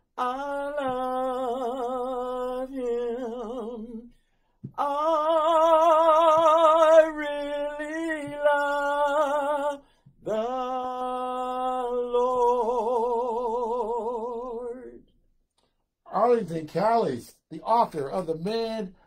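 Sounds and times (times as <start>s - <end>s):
man singing a cappella: 0.0s - 15.1s
man breathing in: 9.8s - 10.2s.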